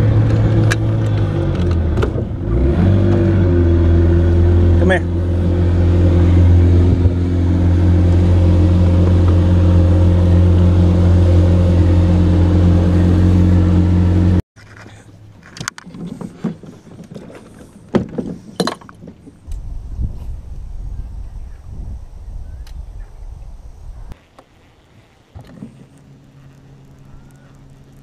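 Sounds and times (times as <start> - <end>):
outboard motor running: 0.0 - 14.8.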